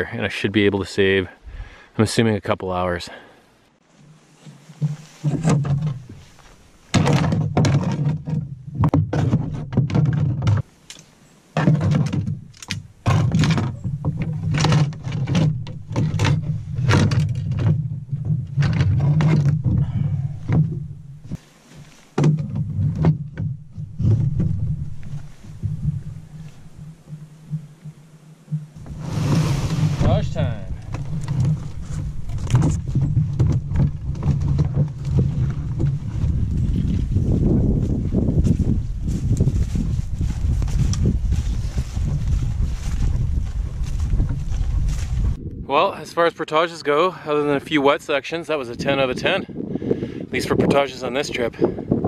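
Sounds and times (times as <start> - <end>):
gear knocking and rattling in canoe: 4.0 - 10.7, 11.6 - 21.4, 22.2 - 45.4.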